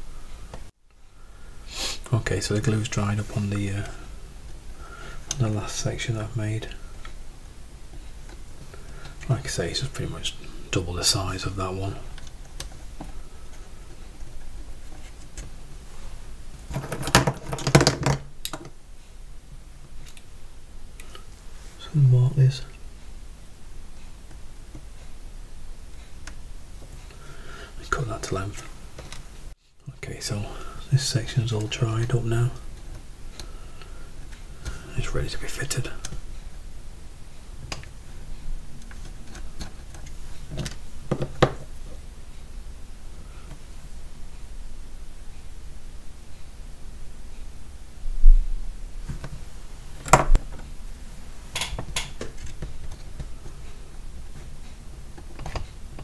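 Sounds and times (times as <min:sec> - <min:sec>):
wooden parts clicking and tapping: 0:16.6 - 0:18.7, 0:38.8 - 0:42.0.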